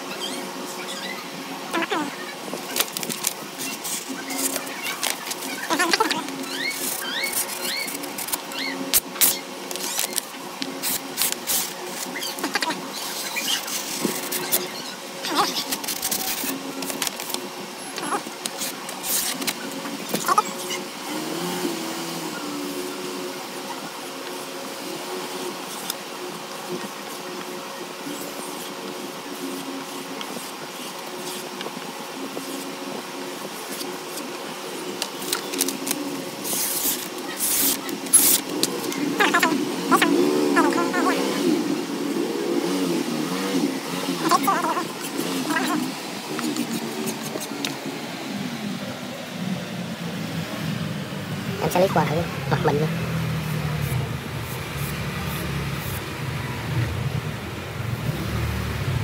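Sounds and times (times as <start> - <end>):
steady hum: 0.0 - 59.0
paper rustling and crinkling: 2.5 - 14.7, 15.3 - 20.4, 34.9 - 40.1.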